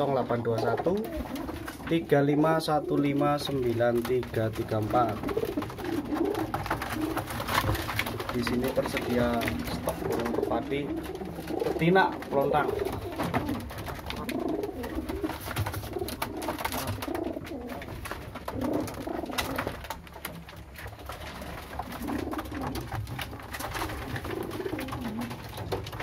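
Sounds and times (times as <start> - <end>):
pigeons cooing: 0.0 - 26.0.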